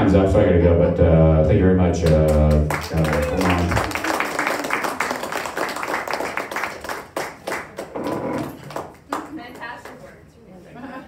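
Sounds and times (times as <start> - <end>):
audience applauding: 2.0 - 9.7.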